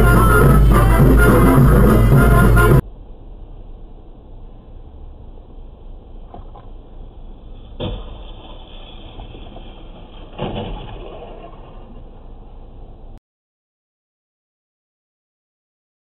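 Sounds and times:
car engine hum: 0:00.0 - 0:07.9
car crash: 0:07.4 - 0:12.8.

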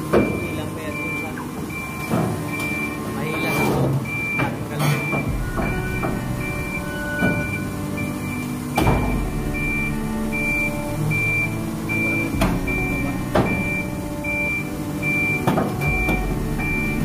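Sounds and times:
crane warning beeper: 0:00.0 - 0:17.0
diesel engine running: 0:05.3 - 0:17.0.

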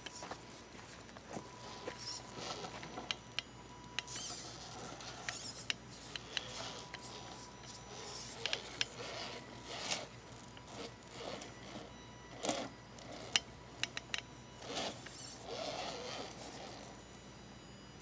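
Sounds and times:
toy car tyres scraping rock: 0:01.6 - 0:03.1, 0:04.1 - 0:13.4, 0:14.6 - 0:16.9.

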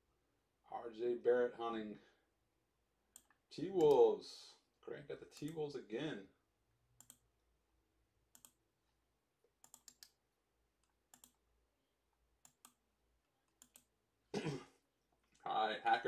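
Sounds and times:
computer mouse and keyboard clicks: 0:07.0 - 0:07.2, 0:09.6 - 0:10.2, 0:10.8 - 0:11.4, 0:13.5 - 0:13.9.

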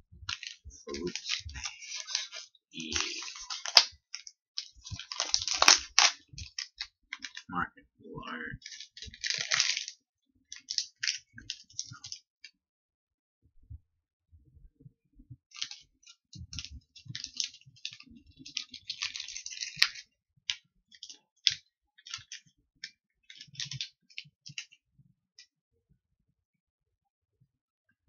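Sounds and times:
candy wrapper crinkling: 0:00.3 - 0:07.5, 0:08.6 - 0:12.2, 0:15.6 - 0:15.8, 0:16.6 - 0:20.0, 0:21.0 - 0:22.4.

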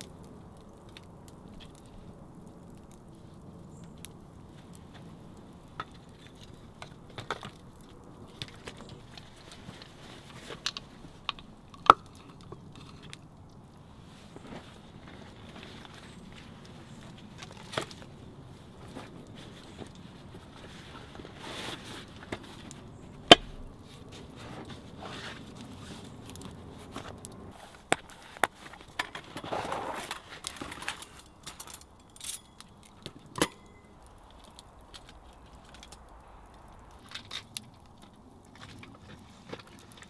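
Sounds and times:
canvas roll rustling: 0:14.1 - 0:23.0, 0:23.8 - 0:31.8
camp gear clicks and knocks: 0:26.2 - 0:36.1.

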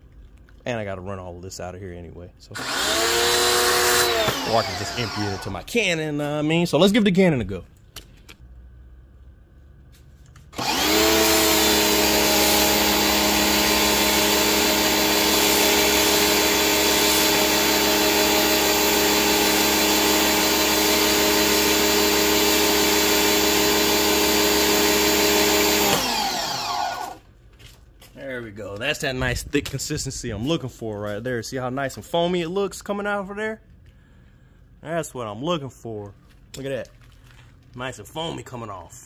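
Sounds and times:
pressure washer motor running: 0:02.6 - 0:05.6, 0:10.5 - 0:27.2.

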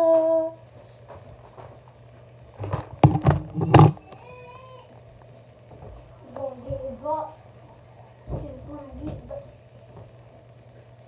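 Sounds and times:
loud knocks: 0:02.7 - 0:04.0.

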